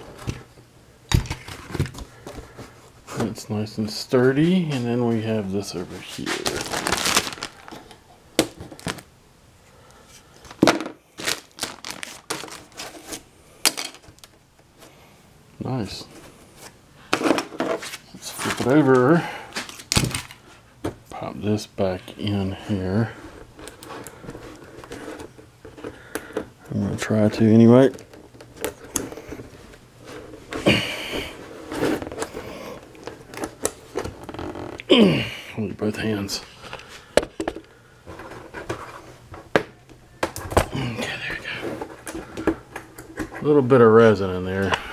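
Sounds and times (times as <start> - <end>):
plastic bag crinkling: 5.9 - 8.0, 8.6 - 9.1, 11.1 - 13.2.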